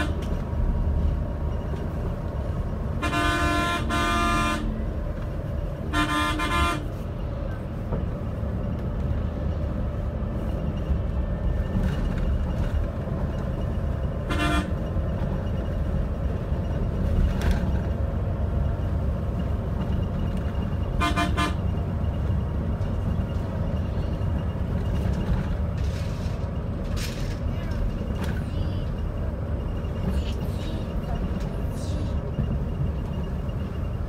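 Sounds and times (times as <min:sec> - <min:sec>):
bus rumble from inside: 0:00.0 - 0:34.0
vehicle horn toots: 0:03.0 - 0:04.8, 0:05.9 - 0:06.9, 0:14.2 - 0:14.8, 0:21.0 - 0:21.6.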